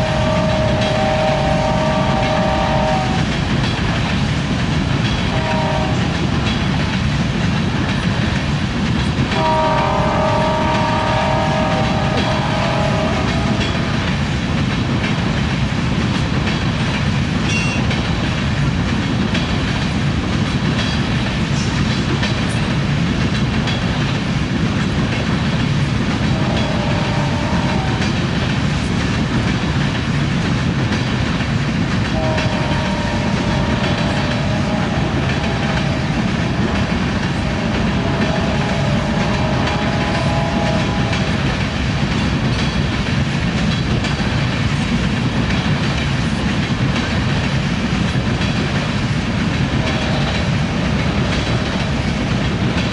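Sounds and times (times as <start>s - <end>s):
faint train horn chord: 0.0s - 3.2s, 5.3s - 6.1s, 9.4s - 13.8s, 26.4s - 28.0s, 32.2s - 41.4s
freight train wheels clicking: 0.0s - 52.9s.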